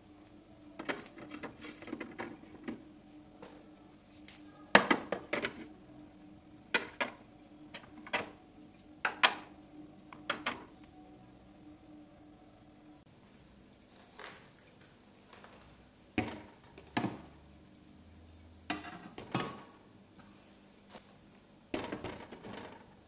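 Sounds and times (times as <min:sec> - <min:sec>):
faint steady hum: 0:00.0 - 0:23.0
jars and bottles clicking on shelves: 0:00.8 - 0:02.8, 0:04.8 - 0:05.7, 0:06.7 - 0:08.4, 0:09.0 - 0:09.5, 0:10.1 - 0:10.7.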